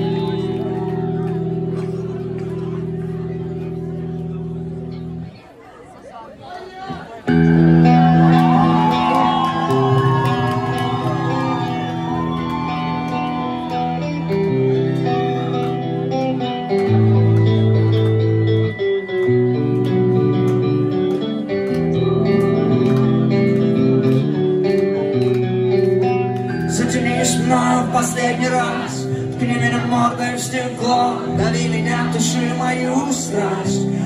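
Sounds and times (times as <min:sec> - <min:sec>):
electric guitar chords: 0:00.0 - 0:05.4, 0:07.3 - 0:34.0
bass line: 0:07.3 - 0:34.0.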